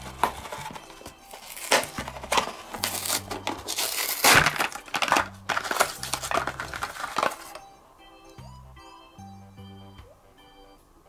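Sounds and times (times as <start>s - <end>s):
packaging crinkling and tearing: 0.0s - 7.6s
background music: 0.0s - 11.0s.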